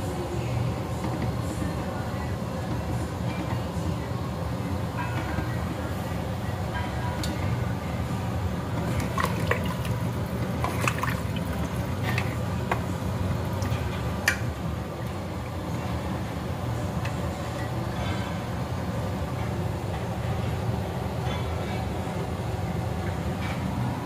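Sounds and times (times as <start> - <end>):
steady low hum: 0.0 - 24.0
water sloshing: 8.8 - 12.9.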